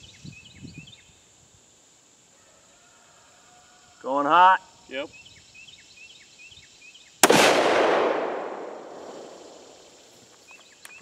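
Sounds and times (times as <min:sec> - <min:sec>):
rifle shot with echo: 0:07.2 - 0:10.0.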